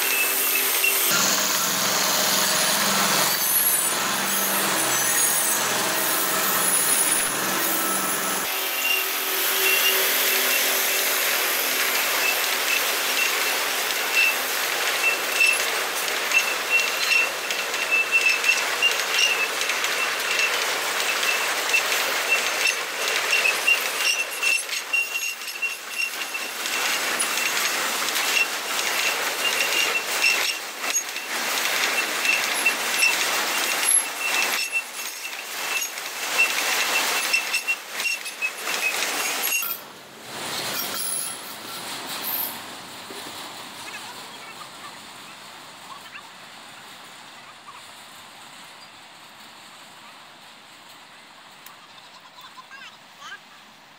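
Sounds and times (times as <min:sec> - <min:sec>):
high-pitched wheel squeal: 0:00.0 - 0:15.7, 0:16.3 - 0:39.8
wagons clanking and rattling: 0:00.0 - 0:50.0
wheels rolling on rails: 0:00.0 - 0:53.8.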